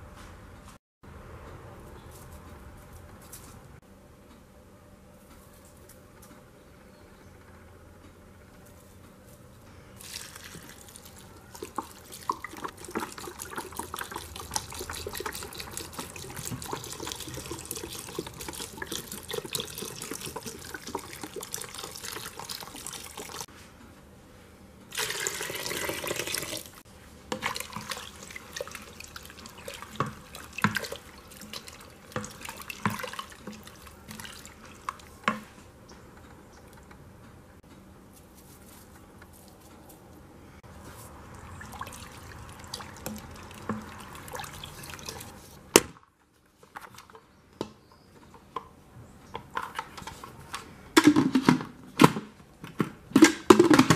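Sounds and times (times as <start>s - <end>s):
liquid pouring into a pot: 10.0s - 23.5s, 24.9s - 26.8s, 27.4s - 35.1s, 41.4s - 45.4s
water drips: 10.0s - 23.5s, 25.0s - 35.4s, 41.2s - 45.4s.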